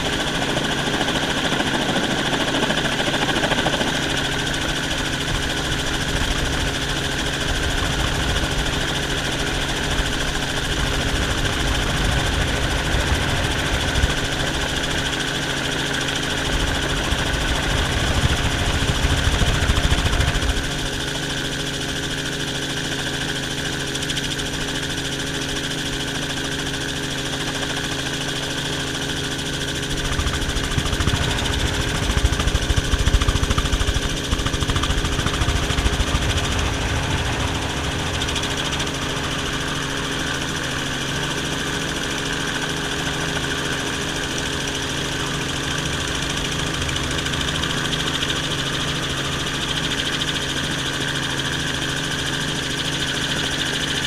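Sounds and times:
helicopter engine and rotor drone: 0.0 - 54.0
deep rumble: 29.9 - 40.8.

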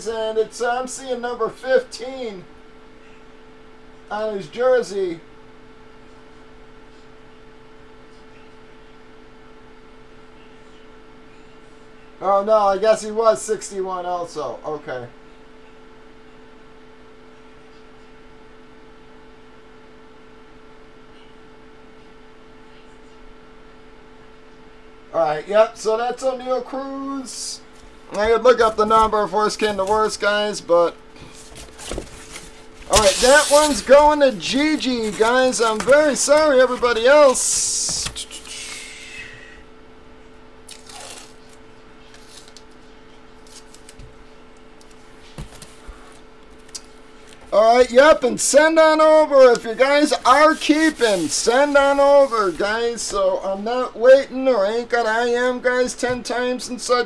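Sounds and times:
steady hum with held tones: 0.0 - 57.0
paper rustle: 27.7 - 30.2, 31.2 - 38.7, 40.7 - 42.7, 43.4 - 44.1, 49.5 - 52.7.

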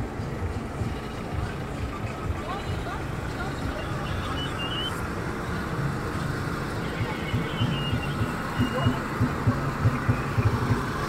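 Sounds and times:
street and vehicle noise: 0.0 - 11.0
deep drumbeats thumping: 6.8 - 11.0.

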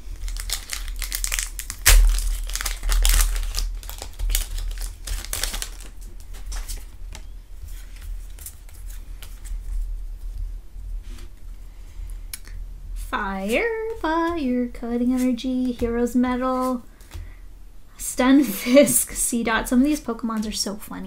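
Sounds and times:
foil wrapper crinkling: 0.0 - 9.7
cards rustling: 0.2 - 9.8.

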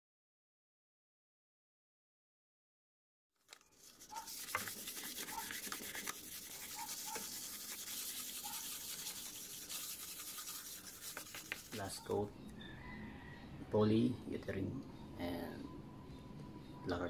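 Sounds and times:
sandpaper scratching on wood: 3.7 - 12.2.

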